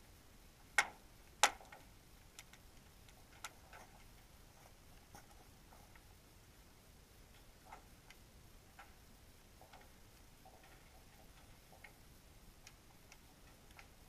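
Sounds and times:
faint steady hiss: 0.0 - 14.0
underwater clicks and ticks: 0.7 - 4.2, 7.3 - 9.0, 9.6 - 12.0, 12.6 - 14.0.

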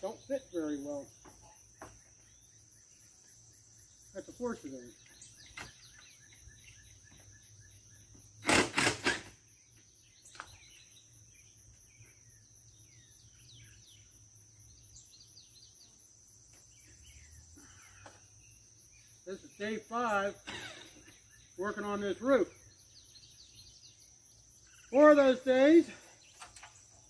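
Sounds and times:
birds chirping: 0.0 - 27.0
high insect drone: 0.0 - 27.0
loud burst of noise: 8.4 - 9.3.

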